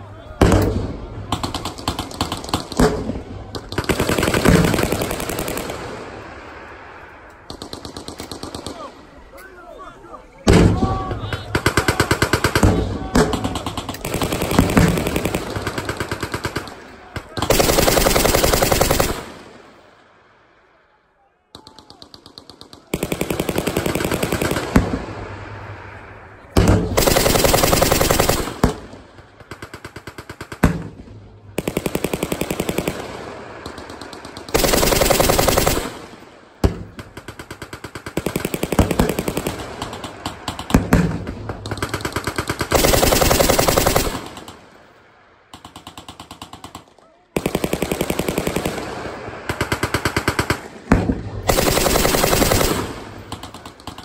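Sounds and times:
faint rattling gunfire: 0:00.4 - 0:06.0, 0:11.4 - 0:19.5, 0:26.6 - 0:54.0
machine guns firing bursts: 0:01.3 - 0:06.0, 0:11.5 - 0:19.7, 0:21.8 - 0:25.0, 0:26.6 - 0:31.0, 0:31.6 - 0:44.8, 0:45.5 - 0:54.0.

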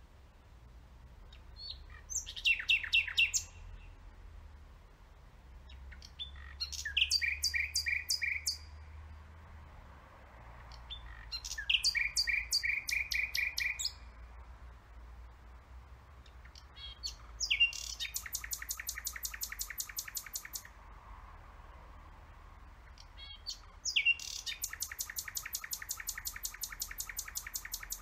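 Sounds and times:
nightingale singing: 0:01.2 - 0:04.0, 0:05.6 - 0:08.8, 0:10.7 - 0:14.2, 0:16.2 - 0:20.8, 0:22.8 - 0:28.0.

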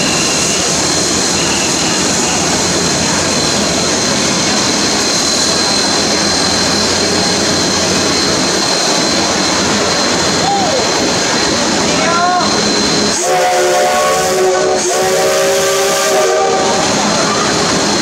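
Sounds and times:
high whistle-like tone: 0:00.0 - 0:04.4
steam hissing: 0:00.0 - 0:18.0.

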